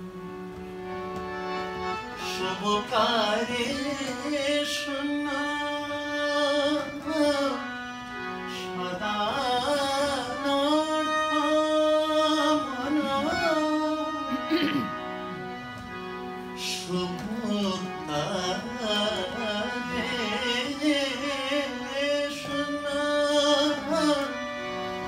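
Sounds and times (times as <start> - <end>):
harmonium drone: 0.0 - 25.0
man singing devotional song: 1.4 - 15.5, 16.5 - 25.0.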